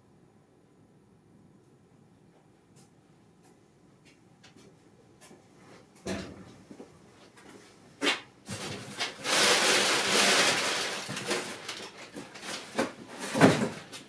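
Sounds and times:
loud rustling of packing: 8.0 - 14.0.

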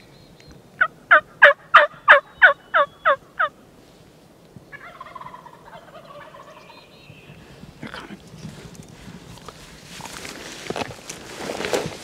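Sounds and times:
turkey yelping: 1.1 - 3.5, 4.7 - 6.7.

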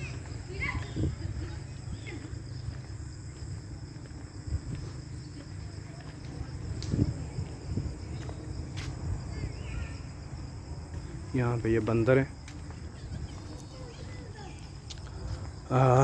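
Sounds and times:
crickets trilling: 0.0 - 16.0.

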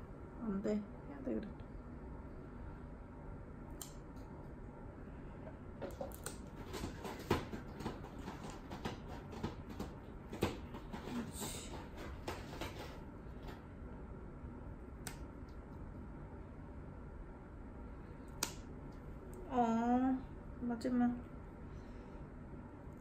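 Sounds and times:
nail clipper clicks: 3.8 - 4.0.

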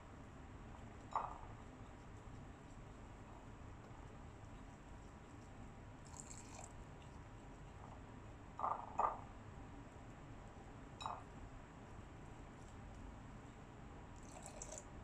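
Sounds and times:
water pouring into flour: 6.0 - 6.8, 14.2 - 14.9.

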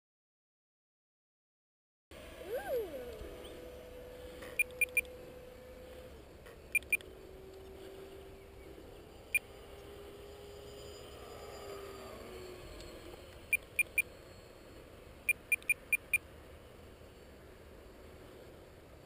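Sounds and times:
distant rc jet whine: 2.1 - 19.0
short electronic beeps: 4.6 - 5.1, 6.7 - 7.0, 13.4 - 16.2.

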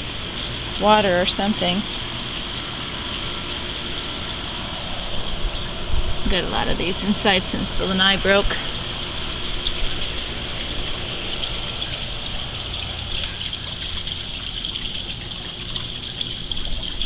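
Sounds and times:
low pump hum: 0.0 - 17.0
pool water rushing: 0.0 - 17.0.

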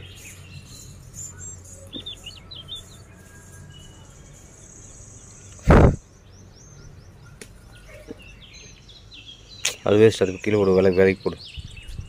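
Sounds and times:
small birds chirping: 0.0 - 12.0
loud dull thump: 5.6 - 6.0.

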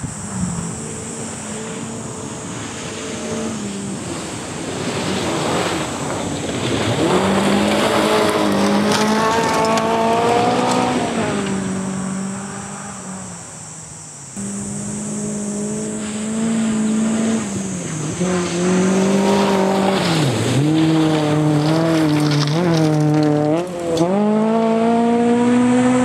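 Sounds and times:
rally car engine revving: 0.0 - 13.6, 14.3 - 26.0.

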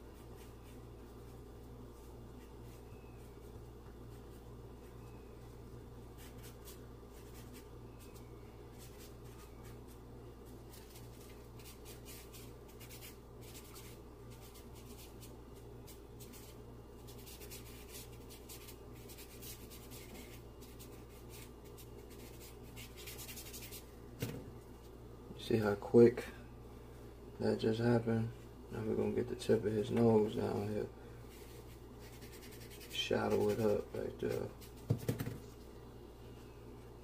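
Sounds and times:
steady low hum: 0.0 - 37.0
charcoal scratching on paper: 10.5 - 23.8, 31.3 - 35.2.

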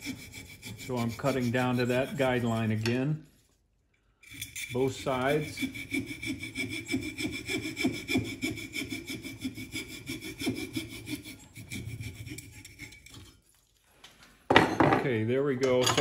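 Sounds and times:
hand saw cutting wood: 0.0 - 3.0, 4.2 - 13.4.

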